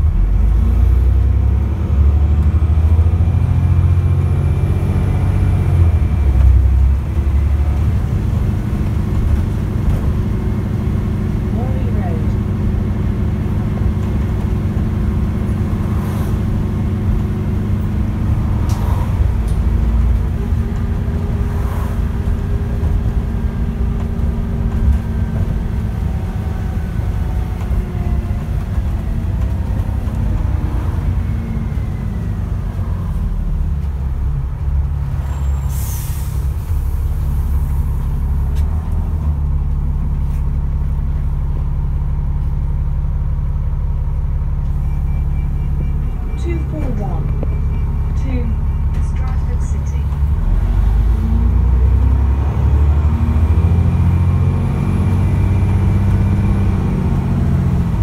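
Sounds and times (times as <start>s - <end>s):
bus engine drone with whine: 0.0s - 58.0s
air brake hiss: 35.5s - 36.6s.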